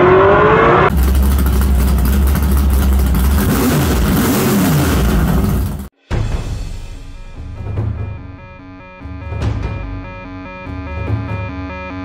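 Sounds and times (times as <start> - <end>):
drag car accelerating: 0.0 - 5.9
engine-like revs: 0.0 - 5.9
deep steady rumble: 0.9 - 5.9.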